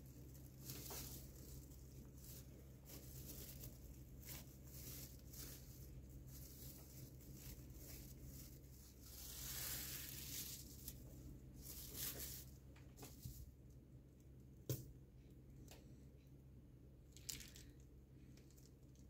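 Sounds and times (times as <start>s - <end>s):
plastic sheeting crinkling: 0.0s - 13.5s.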